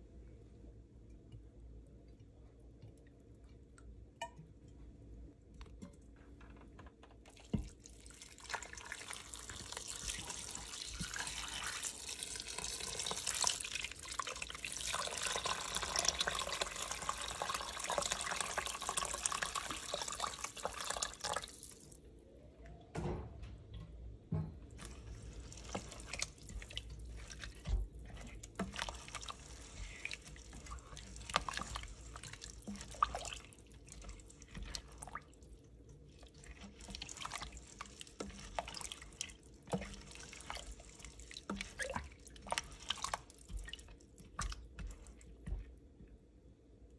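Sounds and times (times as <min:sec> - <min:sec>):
spatula stirring pot: 0:07.3 - 0:21.5, 0:24.7 - 0:46.3
water pouring into metal pot: 0:07.6 - 0:22.0.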